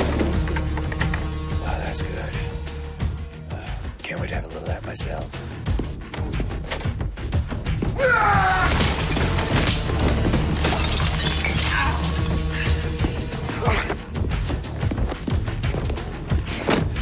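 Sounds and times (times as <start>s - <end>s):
dramatic film score drone: 0.0s - 4.0s
glass breaking: 8.7s - 13.1s.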